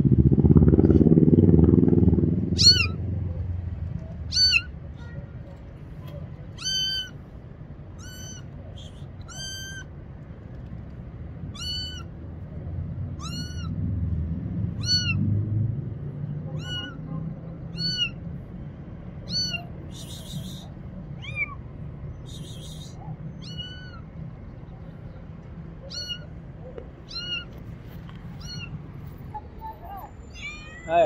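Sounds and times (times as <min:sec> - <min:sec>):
kitten meowing: 0:02.6 - 0:03.0, 0:04.3 - 0:05.2, 0:06.5 - 0:07.2, 0:08.0 - 0:09.9, 0:11.5 - 0:12.1, 0:13.1 - 0:13.8, 0:14.7 - 0:15.2, 0:16.5 - 0:18.2, 0:19.2 - 0:21.6, 0:22.2 - 0:24.1, 0:25.8 - 0:31.0.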